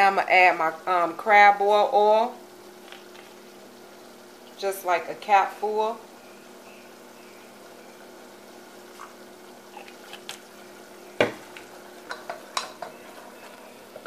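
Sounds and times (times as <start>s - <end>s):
sauce sizzling faintly: 0.0s - 14.0s
steady low hum: 0.1s - 14.0s
wooden spoon stirring in saucepan: 11.3s - 14.0s.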